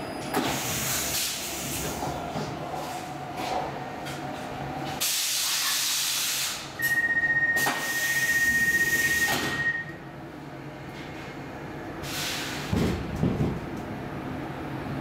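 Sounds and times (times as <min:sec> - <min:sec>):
high warning tone: 0:06.8 - 0:10.0
air hissing from door gear: 0:12.0 - 0:12.7.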